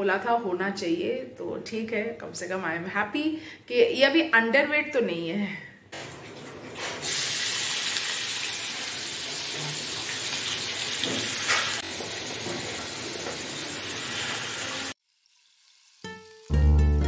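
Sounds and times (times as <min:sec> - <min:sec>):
onions sizzling in hot oil: 0:07.0 - 0:16.6.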